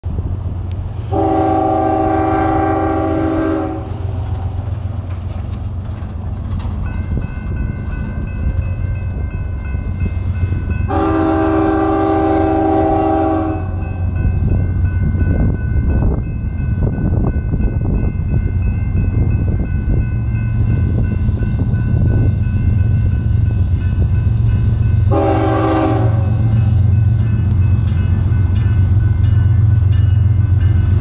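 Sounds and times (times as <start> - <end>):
locomotive horn blasts: 1.1 - 4.0, 10.9 - 14.0, 25.0 - 27.0
crossing warning bell ringing: 1.1 - 31.0.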